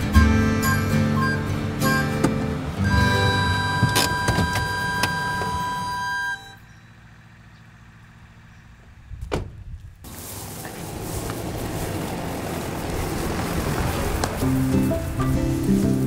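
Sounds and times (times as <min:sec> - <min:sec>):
acoustic guitar music: 0:00.0 - 0:06.6, 0:12.8 - 0:16.0
steady outdoor hiss: 0:00.0 - 0:16.0.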